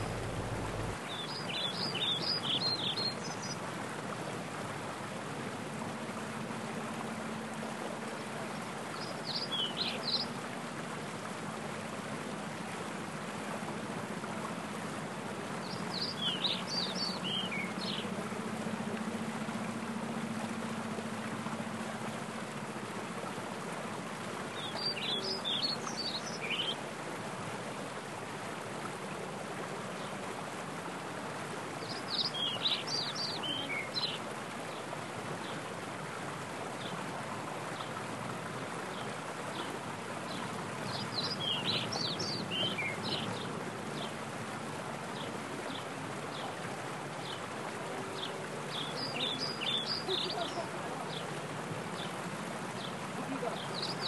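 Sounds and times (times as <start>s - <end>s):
songbird singing: 0.0s - 3.6s, 7.6s - 11.0s, 14.7s - 22.7s, 24.5s - 26.8s, 31.8s - 35.6s, 38.8s - 44.2s, 45.1s - 54.0s
stream rushing over rocks: 0.0s - 54.0s.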